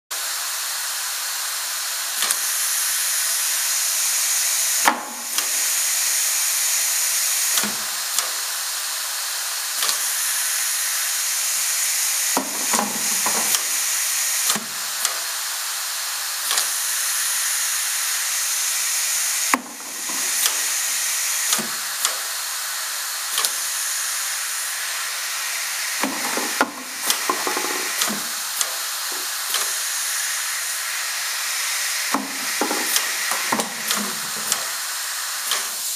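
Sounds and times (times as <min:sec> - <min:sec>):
compressed air hissing: 0:00.4 - 0:35.9
plastic buckets knocking: 0:26.0 - 0:28.3, 0:32.2 - 0:34.5.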